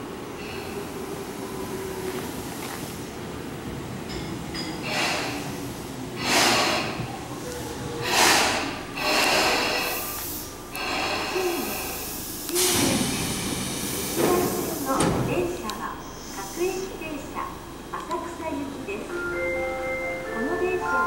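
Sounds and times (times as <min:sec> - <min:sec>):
low rumble of train: 0:00.0 - 0:21.0
electric train braking: 0:04.8 - 0:05.6, 0:06.2 - 0:07.3, 0:08.0 - 0:17.0
air brakes hissing: 0:04.8 - 0:07.2, 0:08.0 - 0:15.2.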